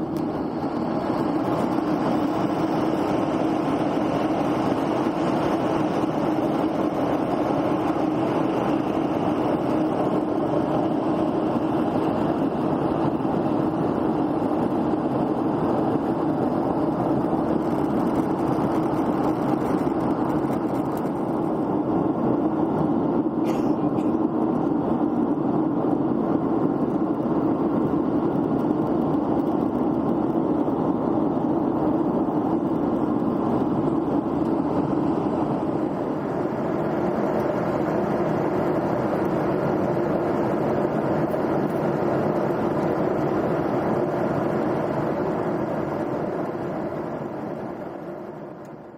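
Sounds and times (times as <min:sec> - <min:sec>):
jet airliner cabin noise: 0:00.0 - 0:48.9.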